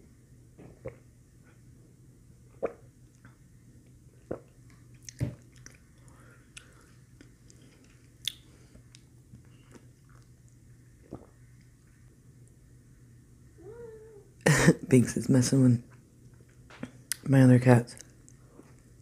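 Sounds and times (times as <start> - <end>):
faint low hum: 0.0 - 19.0
wet mouth clicks and smacks: 8.2 - 9.1.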